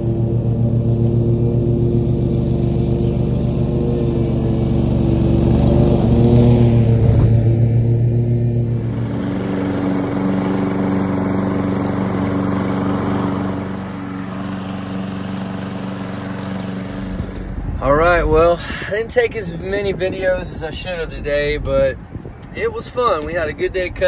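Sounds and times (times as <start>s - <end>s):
push mower small engine: 0.0s - 7.4s, 8.6s - 17.5s
lawn mower engine running: 0.0s - 17.8s.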